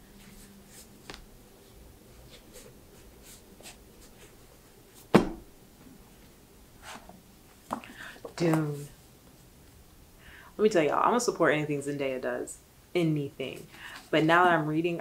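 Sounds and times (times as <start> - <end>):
book thump: 5.1 - 5.5.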